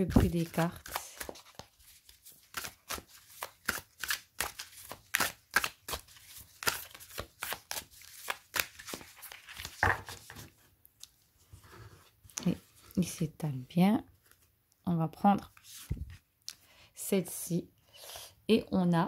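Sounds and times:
cards being shuffled: 0.0s - 11.1s, 15.5s - 16.2s.

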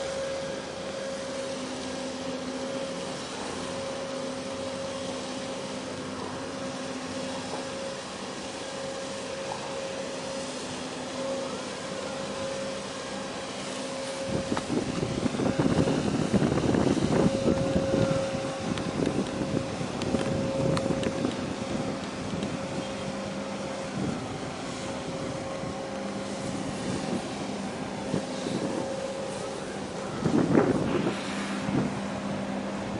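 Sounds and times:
ship machinery low hum: 0.0s - 32.9s
wind buffeting microphone: 14.1s - 32.9s.

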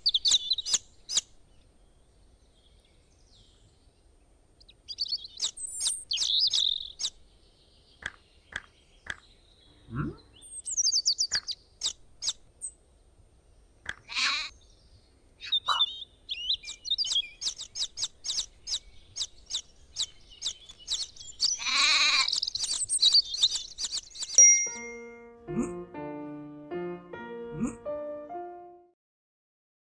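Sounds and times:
short low rising swoop: 9.8s - 10.3s
lamb bleating: 14.1s - 14.5s, 21.6s - 22.4s
chicks peeping: 16.6s - 24.4s.

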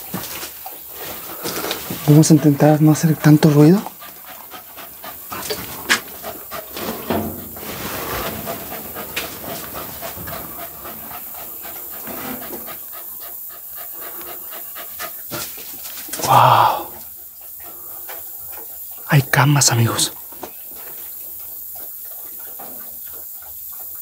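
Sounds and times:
small dog panting: 1.1s - 16.0s
rustling of debris: 6.7s - 10.8s.

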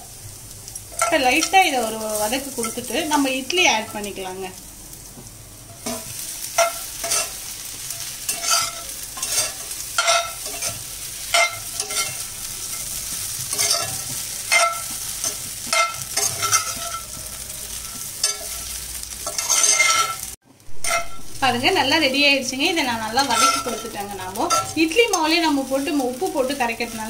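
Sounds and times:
hot oil sizzling: 0.0s - 27.0s
spatula scraping an iron pan: 5.8s - 20.2s, 20.8s - 21.3s, 23.2s - 25.3s.

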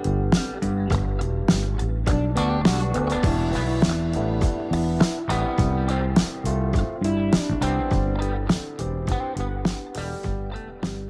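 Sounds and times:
instrumental music with steady beat: 0.0s - 11.0s.

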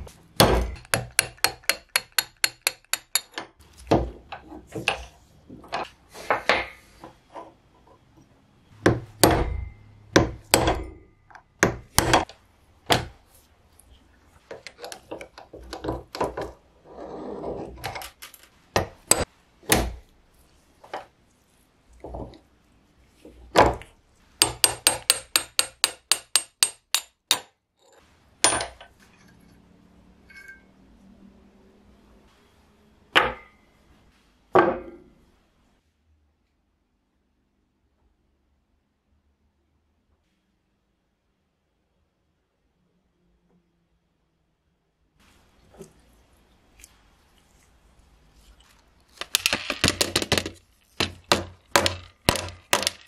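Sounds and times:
metal tools knocking on metal: 0.4s - 3.6s.

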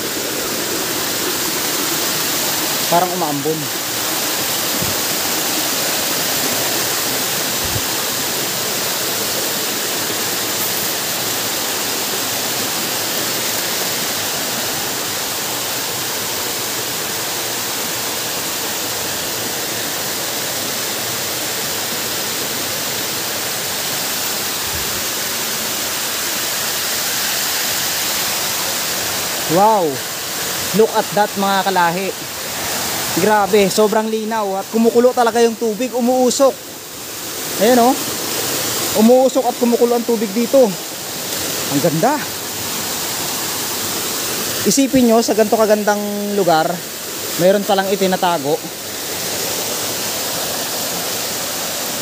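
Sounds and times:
waterfall rushing: 0.0s - 52.0s.

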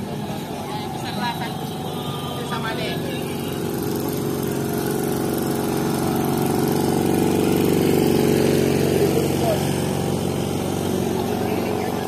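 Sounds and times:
small engine running steadily: 0.0s - 12.0s.

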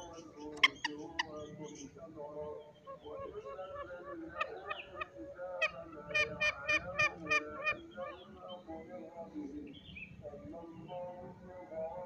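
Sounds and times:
junglefowl calling: 0.0s - 1.9s, 2.6s - 8.6s
birds chirping: 0.0s - 12.0s.

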